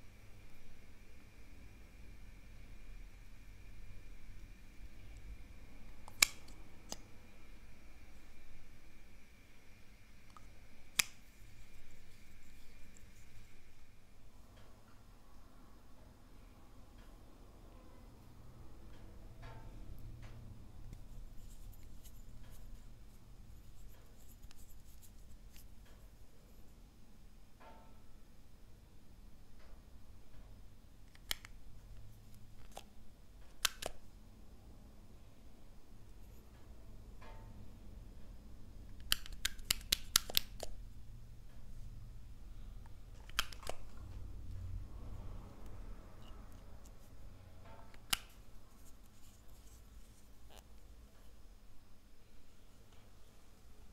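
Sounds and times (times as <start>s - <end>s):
faint low hum: 0.0s - 53.9s
plastic cap clicks: 43.2s - 43.9s.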